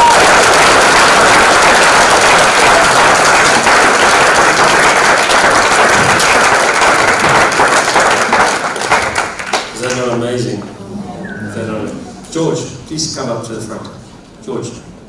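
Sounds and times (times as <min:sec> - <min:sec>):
congregation clapping: 0:00.0 - 0:10.3.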